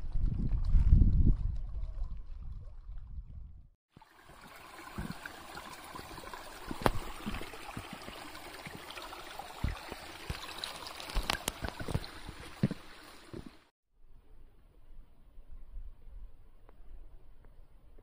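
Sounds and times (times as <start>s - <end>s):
stream trickling over stones: 3.9s - 13.7s
footsteps on wooden boardwalk: 6.7s - 8.8s, 11.3s - 13.6s.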